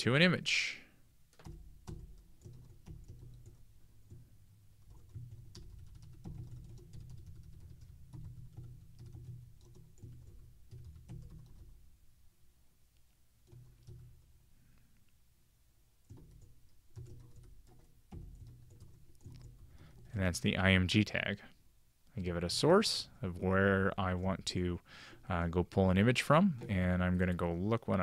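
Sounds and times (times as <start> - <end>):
keyboard typing clicks: 1.3 - 11.8, 13.4 - 14.3, 16.1 - 20.4.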